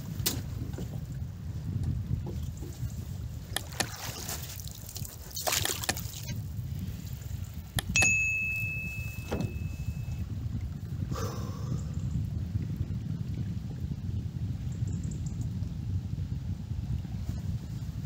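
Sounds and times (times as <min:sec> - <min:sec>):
water moving around a boat: 0:00.0 - 0:18.0
wind buffeting the microphone: 0:00.0 - 0:18.0
bell-like ding: 0:07.8 - 0:10.2.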